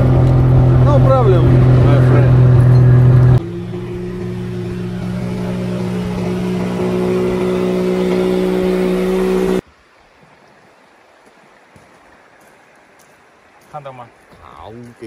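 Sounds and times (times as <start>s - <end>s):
outboard motor running: 0.0s - 9.6s.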